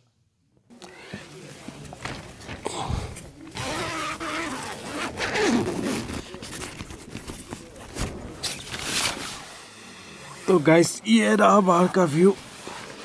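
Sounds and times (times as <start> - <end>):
tent zipper rasping: 3.5 - 7.1.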